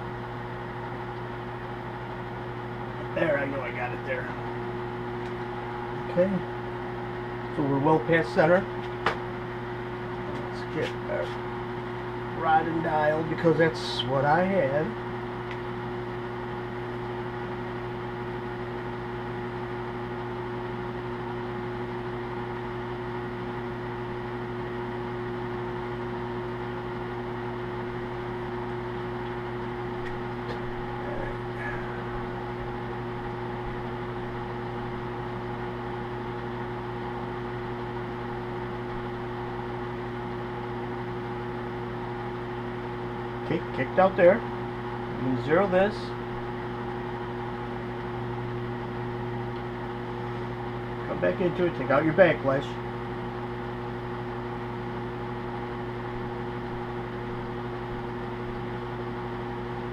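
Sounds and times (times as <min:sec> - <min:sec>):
electric motor hum: 0:00.0 - 0:59.9.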